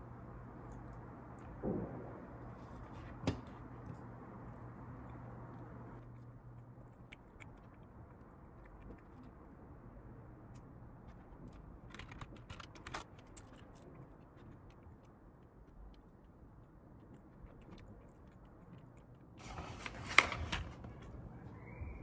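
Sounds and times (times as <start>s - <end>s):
low steady hum: 0.0s - 22.0s
paper rustling: 19.4s - 21.1s.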